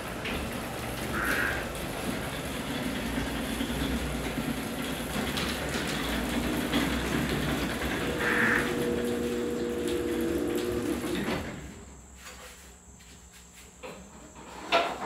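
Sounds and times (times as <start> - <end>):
tractor engine rumbling: 0.0 - 10.0.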